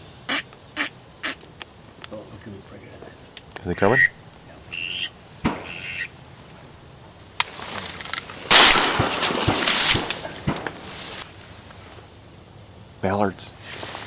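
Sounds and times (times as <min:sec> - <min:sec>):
duck quacking: 0:00.3 - 0:01.4, 0:04.7 - 0:06.1
duck whistle-like notes: 0:04.0 - 0:06.1.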